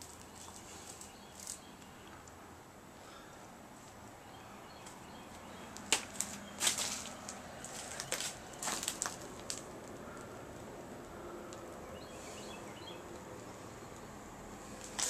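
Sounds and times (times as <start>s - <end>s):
crackling rustle of burnt debris: 0.0s - 2.2s, 5.8s - 12.5s, 13.1s - 15.0s
sharp crack: 5.7s - 7.2s.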